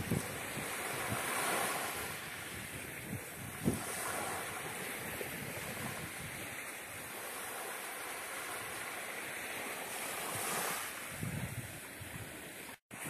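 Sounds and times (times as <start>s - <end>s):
waves washing up pebble beach: 0.0s - 13.0s
wind buffeting microphone: 0.0s - 13.0s.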